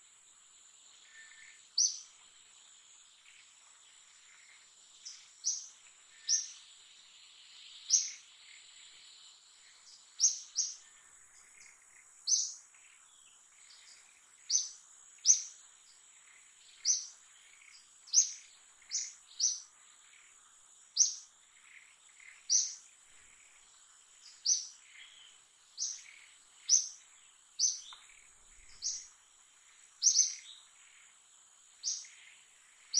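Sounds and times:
high-pitched insect whine: 0:00.0 - 0:32.9
bird chirping: 0:00.8 - 0:32.9.

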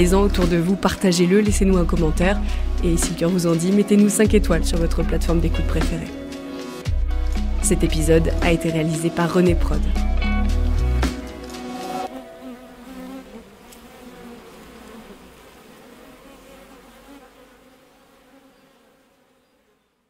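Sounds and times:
music track: 0:00.0 - 0:12.2
bees buzzing: 0:00.0 - 0:19.9.

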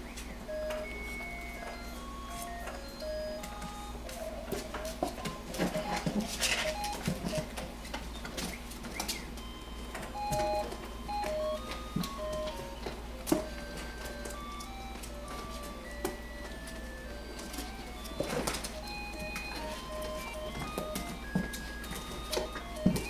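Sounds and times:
puppies scrambling over plastic toys: 0:04.1 - 0:14.4, 0:15.0 - 0:23.0
electronic beeping tune: 0:09.4 - 0:12.6, 0:18.8 - 0:23.0.

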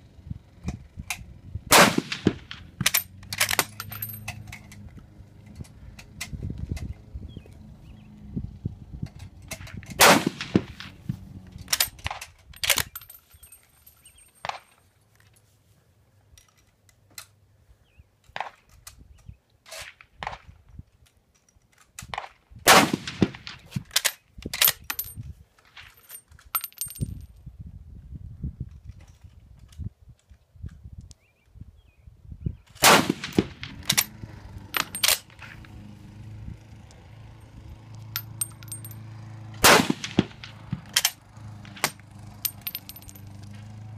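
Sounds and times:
rifle shots: 0:01.7 - 0:03.7, 0:10.0 - 0:11.0, 0:22.7 - 0:23.6, 0:32.8 - 0:34.1, 0:39.6 - 0:42.0
metallic clacks of rifle bolt: 0:02.0 - 0:07.0, 0:09.0 - 0:15.4, 0:16.2 - 0:17.4, 0:18.2 - 0:22.3, 0:23.4 - 0:27.2, 0:32.8 - 0:35.6, 0:40.9 - 0:43.2.

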